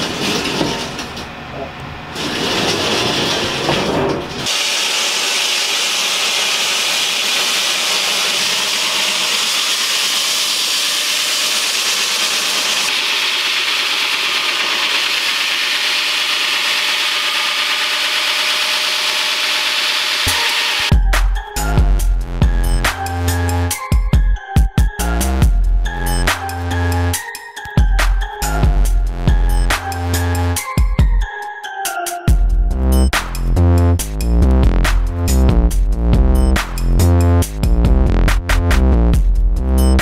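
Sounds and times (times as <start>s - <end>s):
wall saw grinding concrete: 0.0s - 20.9s.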